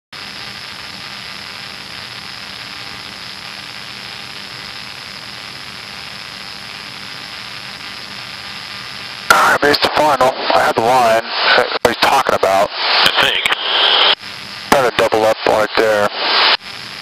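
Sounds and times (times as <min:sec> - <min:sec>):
aircraft cockpit engine drone: 0:00.2 - 0:17.0
faint steady hum: 0:00.2 - 0:17.0.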